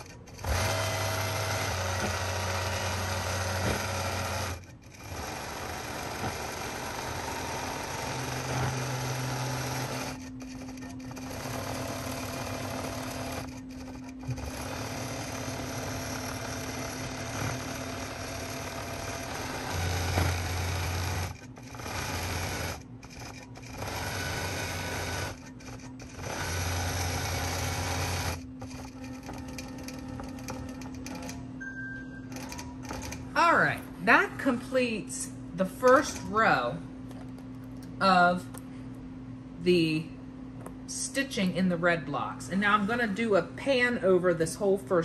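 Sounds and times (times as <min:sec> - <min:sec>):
quilting machine stitching: 0:00.0 - 0:31.5, 0:32.2 - 0:33.4.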